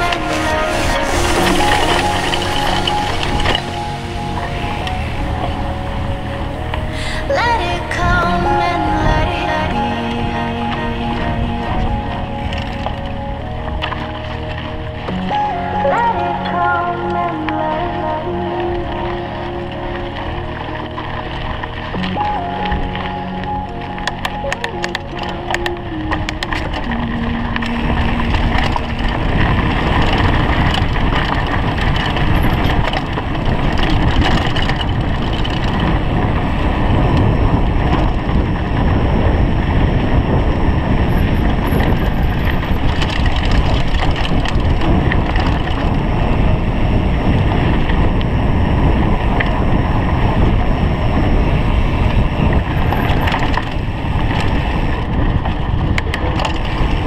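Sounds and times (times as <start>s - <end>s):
bike tyres rumbling on dirt: 0.0s - 16.9s, 17.6s - 57.0s
wind noise on microphone: 0.0s - 57.0s
bike frame rattling: 24.1s - 57.0s.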